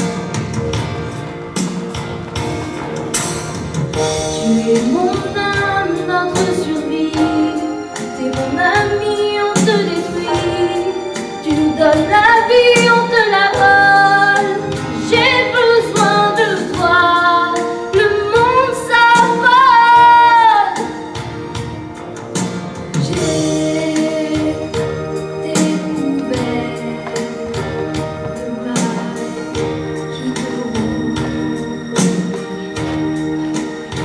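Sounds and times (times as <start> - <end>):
instrumental accompaniment: 0.0 - 34.0
girl singing: 4.4 - 20.9, 23.1 - 27.6.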